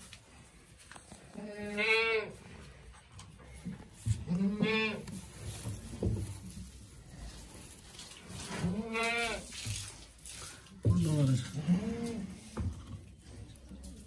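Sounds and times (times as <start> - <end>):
goat bleating: 4.3 - 5.0, 8.7 - 9.4.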